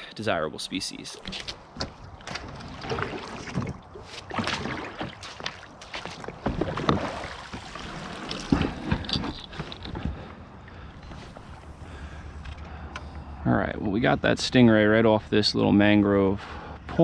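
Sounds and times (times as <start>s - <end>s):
kayak hull sliding and splashing: 1.3s - 10.4s, 11.0s - 11.9s.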